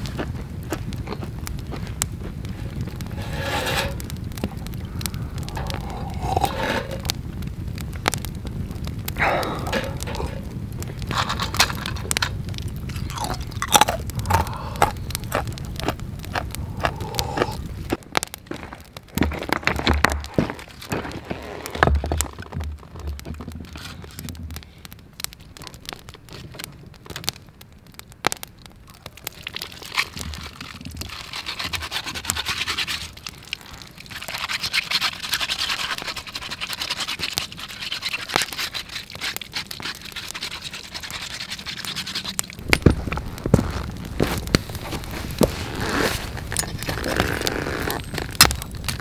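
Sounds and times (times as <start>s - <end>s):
dense rasping noise: 0.0s - 18.0s
campfire crackling and popping: 0.0s - 49.0s.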